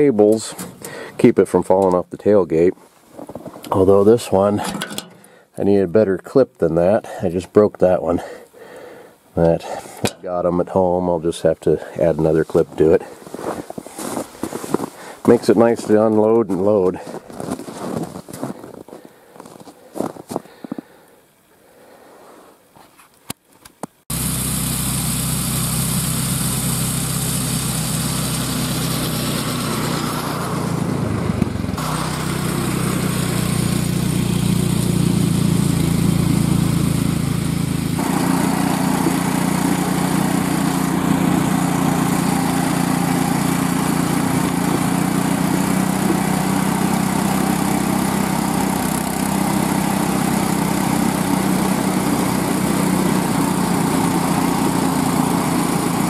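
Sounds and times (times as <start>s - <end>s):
small gas engine running: 4.4s - 5.4s, 24.1s - 56.0s.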